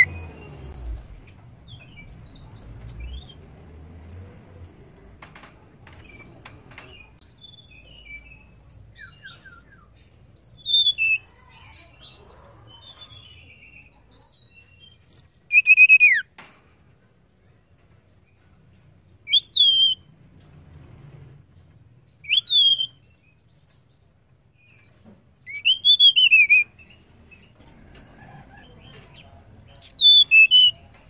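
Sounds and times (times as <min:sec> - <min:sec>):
bird chirps and whistles: 0:09.0 - 0:11.2, 0:15.1 - 0:16.2, 0:19.2 - 0:20.0, 0:22.2 - 0:23.0, 0:25.5 - 0:26.7, 0:29.6 - 0:30.8.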